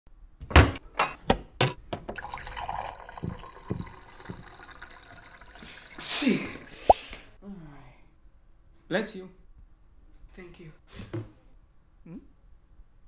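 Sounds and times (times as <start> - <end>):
kitchen knocks and clinks: 0.5 - 2.2.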